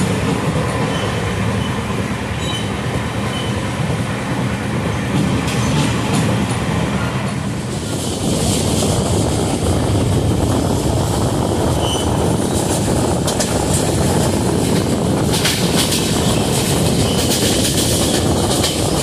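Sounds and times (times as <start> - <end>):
train wheels on rails: 0.0 - 19.0
rush of air: 7.4 - 19.0.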